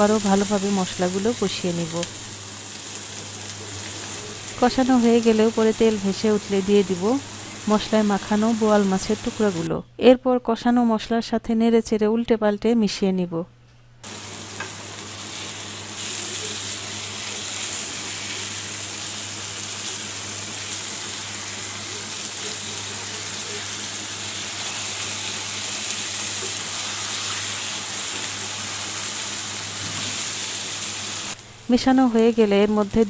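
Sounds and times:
fish frying in hot oil: 14.1s - 31.4s.

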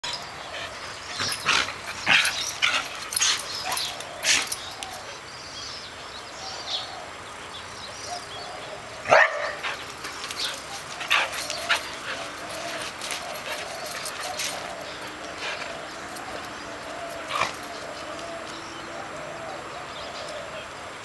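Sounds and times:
dogs barking: 0.7s - 5.2s, 9.0s - 20.4s
dog whining: 10.4s - 18.5s.

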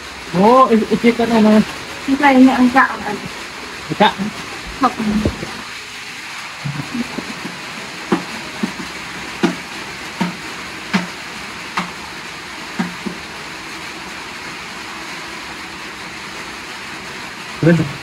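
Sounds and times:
rain hissing: 0.0s - 18.0s
knife chopping meat: 8.1s - 11.2s, 11.8s - 12.0s, 12.8s - 13.2s.

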